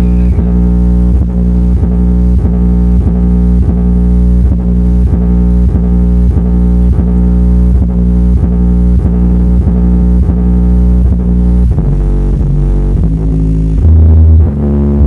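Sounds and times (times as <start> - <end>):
loud dance music: 0.0 - 0.8
deep bass beat: 0.0 - 15.0.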